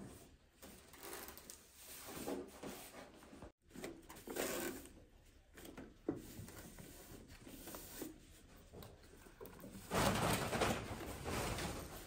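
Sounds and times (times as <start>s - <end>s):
rustling of things handled: 0.0s - 12.0s.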